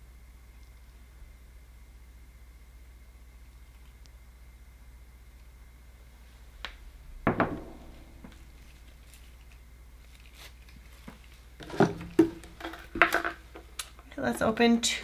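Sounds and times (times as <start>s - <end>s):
bowl knocking on wooden board: 7.3s - 8.4s.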